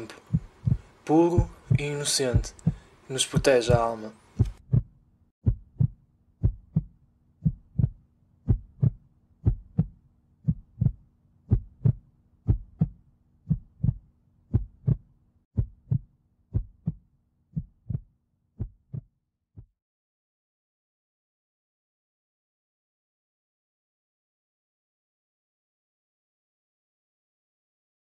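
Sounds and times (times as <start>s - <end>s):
heartbeat: 0.3s - 19.8s.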